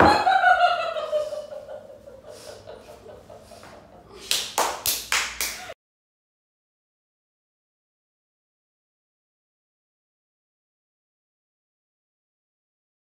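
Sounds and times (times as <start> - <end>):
hands clapping: 4.2 - 5.8.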